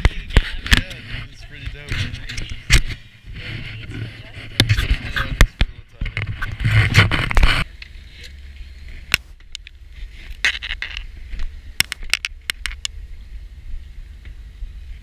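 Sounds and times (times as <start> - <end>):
scraping and rustling on microphone: 0.0 - 11.6
boat low rumble: 0.0 - 15.0.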